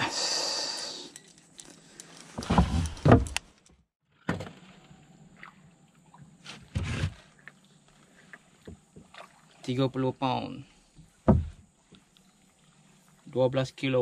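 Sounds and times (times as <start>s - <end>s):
thumps in a wooden boat: 2.4s - 3.4s, 11.2s - 11.6s.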